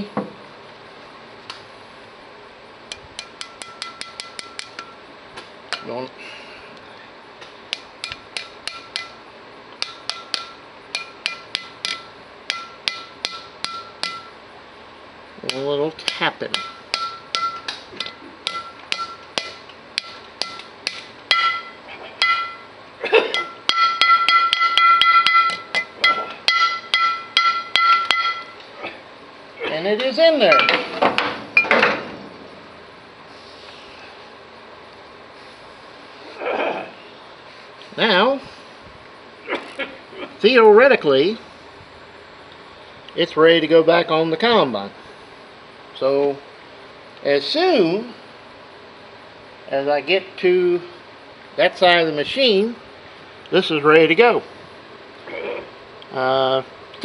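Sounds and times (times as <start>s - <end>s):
hammer tapping metal: 2.9s - 5.0s, 7.7s - 9.2s, 9.8s - 14.4s, 15.5s - 22.7s, 23.3s - 28.6s, 30.5s - 32.0s
metallic ring: 16.6s - 20.7s, 21.3s - 22.7s, 23.3s - 28.6s, 30.5s - 32.2s.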